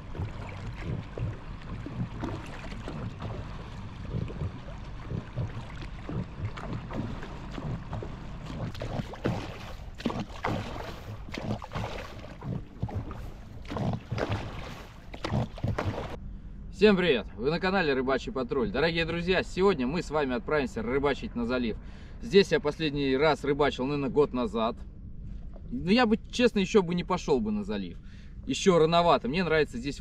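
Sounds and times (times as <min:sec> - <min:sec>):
water lapping against boat hull: 0:00.0 - 0:16.2, 0:25.2 - 0:26.5.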